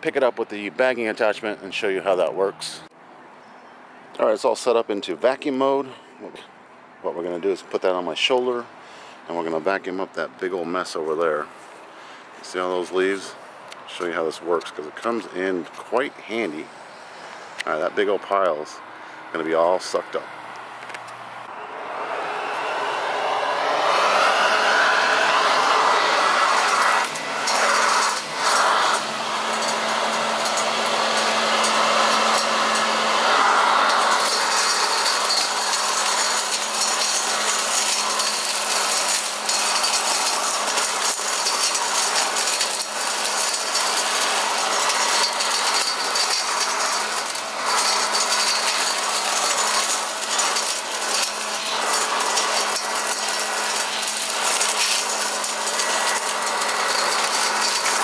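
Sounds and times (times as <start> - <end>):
leaf vacuum motor hum: 18.3 - 58.0
debris clicking and rattling: 26.5 - 33.2, 33.8 - 58.0.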